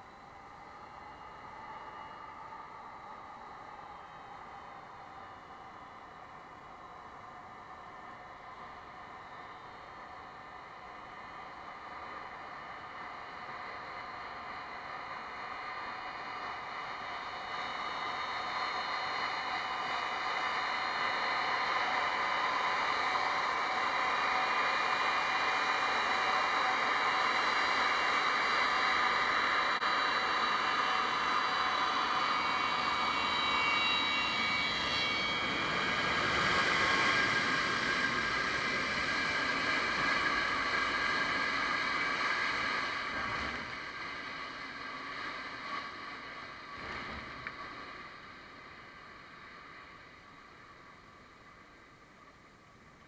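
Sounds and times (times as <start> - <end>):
jet engines whining: 0.0 - 51.8.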